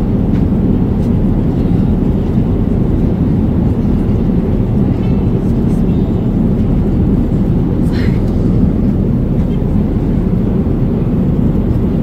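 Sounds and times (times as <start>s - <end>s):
jet engine roar in cabin: 0.0s - 12.0s
rushing air: 6.4s - 12.0s.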